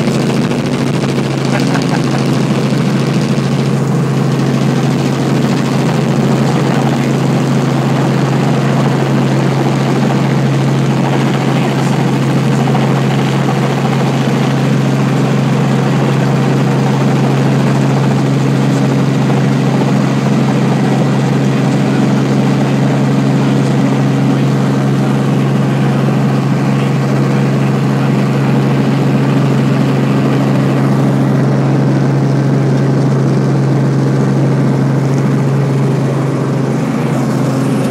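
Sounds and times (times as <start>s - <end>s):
helicopter cabin engine drone: 0.0s - 37.9s.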